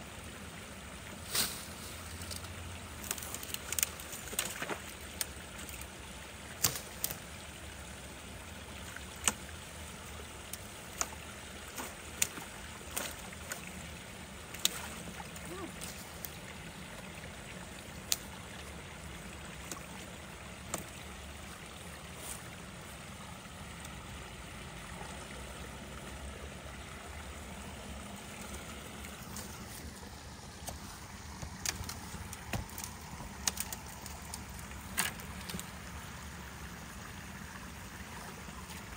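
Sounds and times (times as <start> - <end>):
water trickling: 0.0 - 38.9
sticks cracking and knocking: 1.4 - 5.9, 6.6 - 7.2, 9.2 - 9.4, 10.5 - 13.6, 14.5 - 16.3, 20.7 - 21.0, 30.6 - 35.7.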